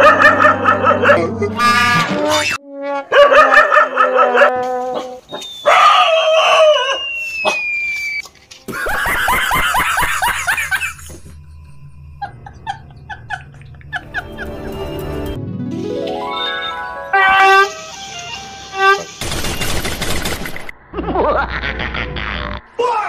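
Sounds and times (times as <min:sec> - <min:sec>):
dog barking and yelping: 0:00.0 - 0:01.3, 0:03.1 - 0:07.6
man laughing: 0:08.7 - 0:11.2, 0:12.2 - 0:14.8, 0:20.9 - 0:23.0.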